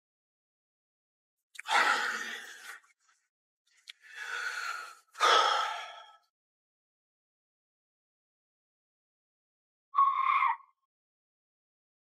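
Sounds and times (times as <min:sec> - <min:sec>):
man breathing heavily: 0:04.0 - 0:06.3.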